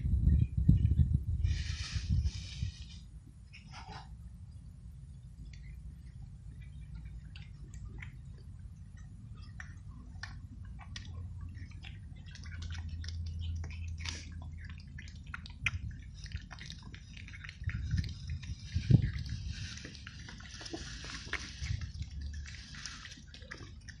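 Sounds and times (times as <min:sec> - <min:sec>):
low rumble: 0:00.0 - 0:24.0
cats chewing dry kibble: 0:05.2 - 0:24.0.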